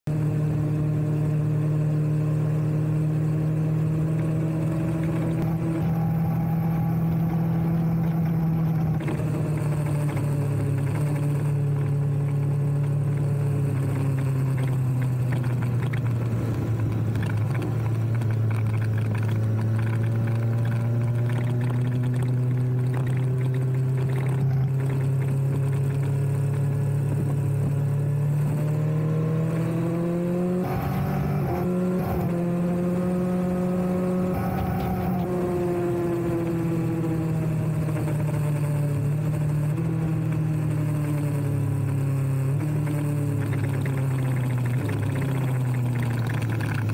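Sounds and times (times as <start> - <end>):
motorcycle engine running: 0.1 - 46.9.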